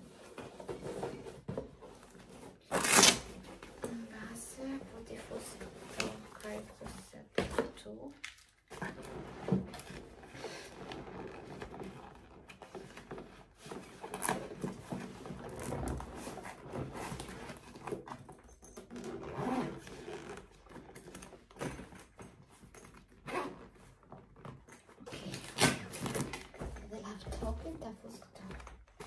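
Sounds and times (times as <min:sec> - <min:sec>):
zipper being worked: 0:00.0 - 0:07.0, 0:08.7 - 0:26.9.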